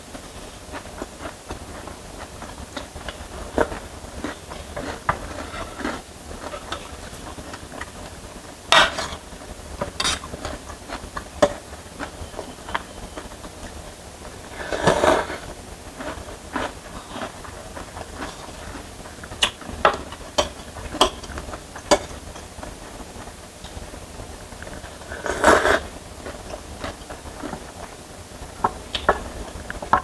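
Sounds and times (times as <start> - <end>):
cutlery clinking and scraping in tray: 9.9 - 10.4
chewing: 14.6 - 22.0, 24.6 - 27.9
noodle slurping: 25.0 - 25.9.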